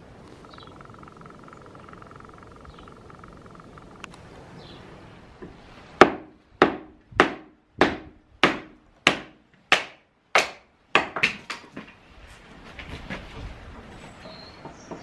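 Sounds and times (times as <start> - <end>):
hammer striking firewood: 6.0 - 11.7.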